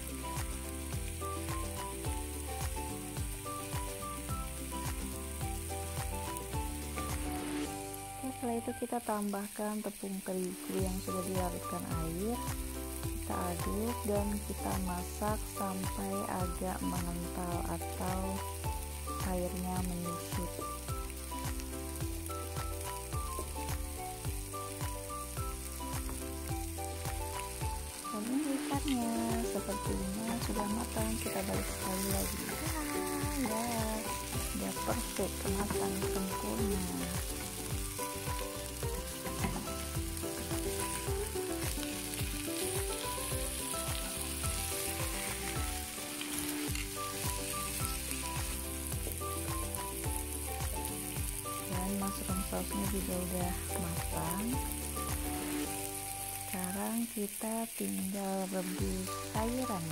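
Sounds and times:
background music with steady beat: 0.0s - 8.6s, 10.8s - 56.6s, 58.8s - 59.9s
sauce sizzling in a pan: 0.0s - 59.9s
metal tongs turning food: 28.2s - 48.6s.

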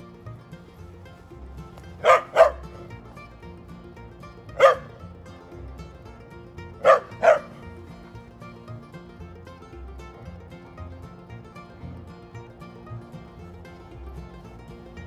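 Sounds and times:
quiet background music: 0.0s - 15.0s
dog barking: 2.0s - 2.9s, 4.6s - 5.0s, 6.8s - 7.6s.

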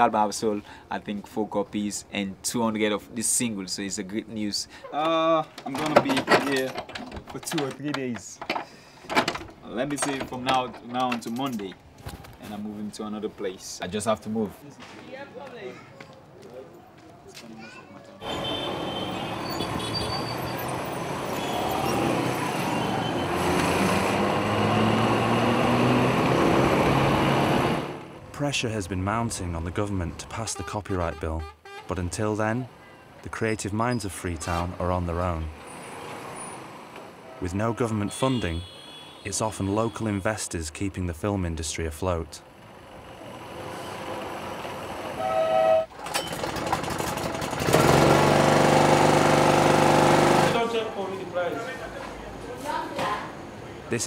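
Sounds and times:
road and traffic noise: 0.0s - 54.0s
clicks and rattles: 5.4s - 11.8s, 46.0s - 47.9s
generator engine running: 46.2s - 50.7s.

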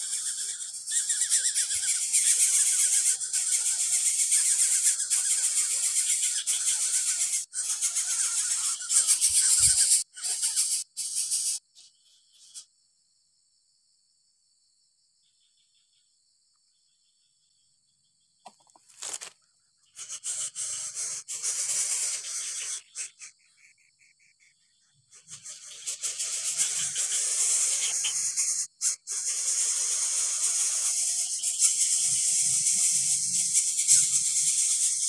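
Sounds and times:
insect trilling: 0.0s - 12.6s, 18.5s - 35.0s
nestlings hissing: 20.1s - 22.9s, 26.0s - 35.0s.

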